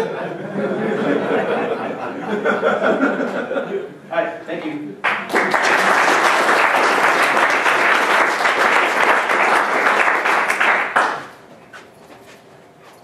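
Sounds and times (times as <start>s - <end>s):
audience applauding: 5.0s - 11.4s.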